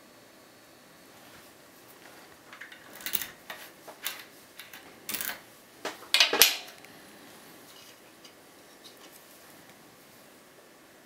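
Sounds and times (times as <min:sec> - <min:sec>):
lock pins clicking and scraping: 0:02.4 - 0:06.9.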